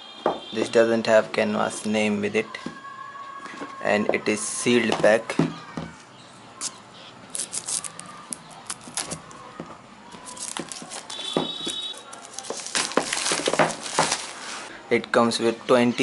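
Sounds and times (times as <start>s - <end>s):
plastic wrap crinkling and tearing: 7.3s - 9.5s, 10.1s - 14.7s.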